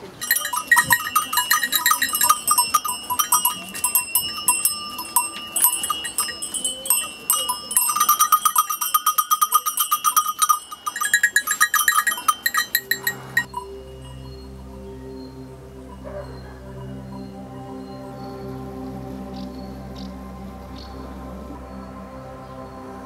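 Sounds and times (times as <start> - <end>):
animal bells clanking: 0.0 - 18.2.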